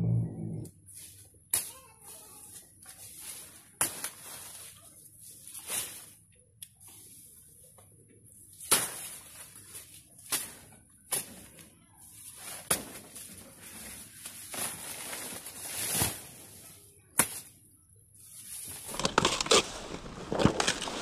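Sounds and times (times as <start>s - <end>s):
leaves rustling: 13.6s - 16.5s, 18.4s - 21.0s
dry leaves tearing: 18.8s - 21.0s.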